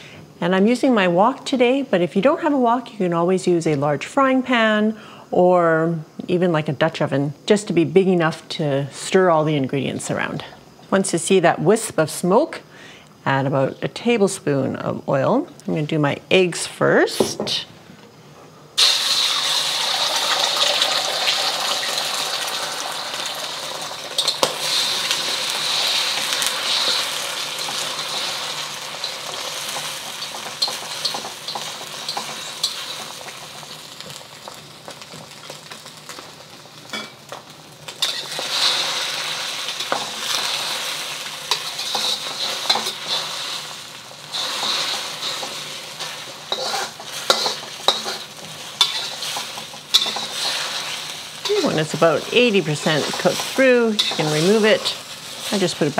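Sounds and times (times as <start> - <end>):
eggs sizzling in hot oil: 18.8 - 55.9
utensil scraping a wok: 23.2 - 34.1, 37.9 - 55.9.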